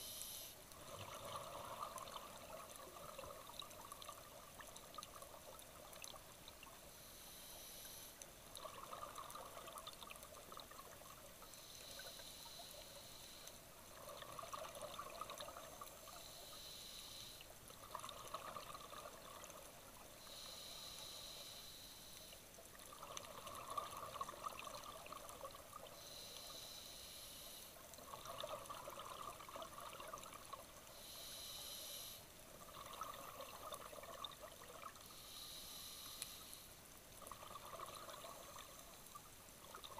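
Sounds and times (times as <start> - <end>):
regulator hiss on inhalation: 0.0 - 0.6, 6.9 - 8.2, 11.4 - 13.6, 16.1 - 17.5, 20.2 - 22.4, 26.0 - 27.8, 30.9 - 32.3, 35.1 - 36.8
exhaust bubbles gurgling: 37.2 - 38.7.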